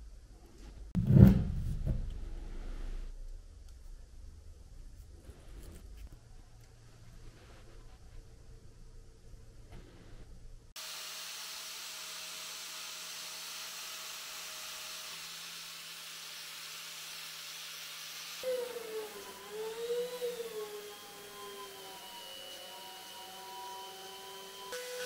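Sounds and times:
electric power tool humming: 10.8s - 25.0s.

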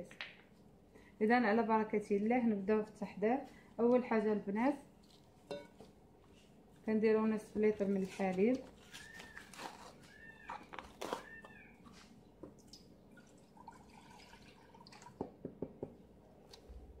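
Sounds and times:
milk pouring into saucepan: 12.6s - 15.3s.

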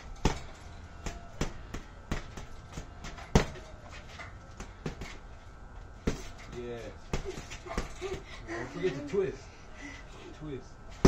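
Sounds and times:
boxing gloves punching heavy bag: 0.0s - 5.2s, 6.0s - 8.4s.

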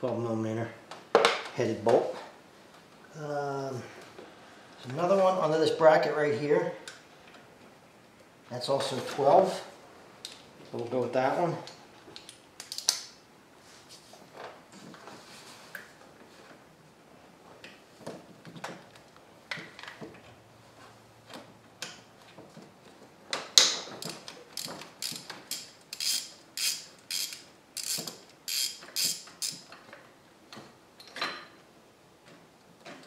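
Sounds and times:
ratchet wrench clicking: 24.6s - 29.7s.

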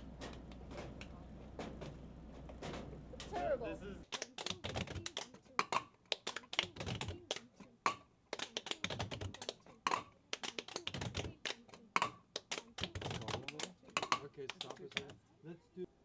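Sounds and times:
gloved hands tapping and clapping: 3.2s - 15.2s.

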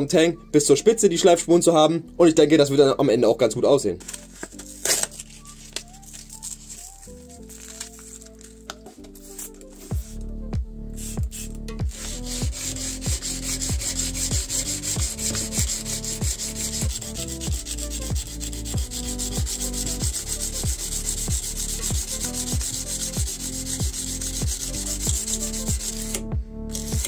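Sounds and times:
electronic music with kick drum: 9.7s - 27.0s
sandpaper rubbing steel blade: 11.0s - 27.0s.

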